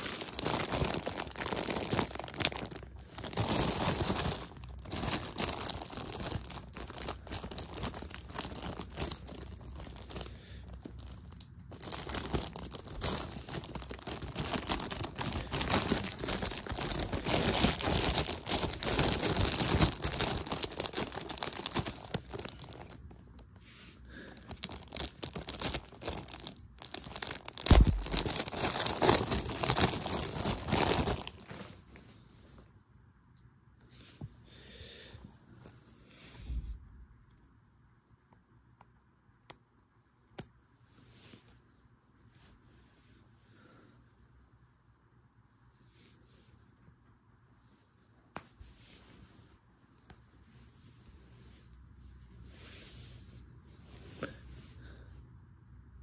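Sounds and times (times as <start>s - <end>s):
plastic bag crinkling: 0.0s - 23.5s, 24.2s - 32.0s.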